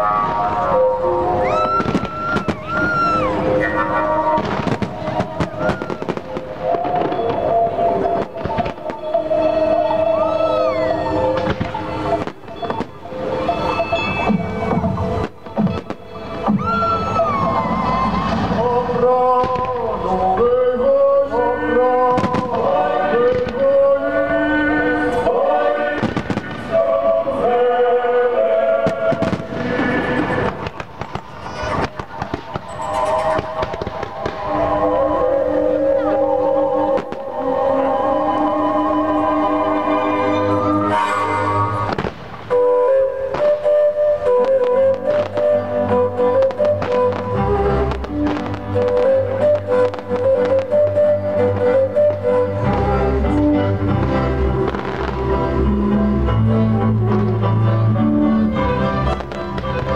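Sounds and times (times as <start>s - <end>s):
fireworks bangs and crackles: 0.0s - 10.3s, 11.2s - 20.6s, 22.0s - 24.0s, 25.9s - 27.6s, 28.7s - 34.9s, 36.9s - 37.5s, 41.6s - 55.6s, 59.0s - 59.9s
music with sustained notes: 0.0s - 59.9s
gliding held tone: 29.6s - 57.3s.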